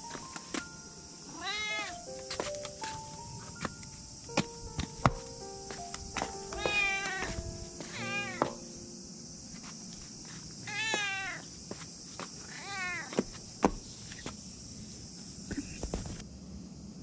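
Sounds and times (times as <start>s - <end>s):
cat meowing: 1.3s - 2.1s, 6.5s - 8.6s, 10.7s - 11.5s, 12.5s - 13.1s.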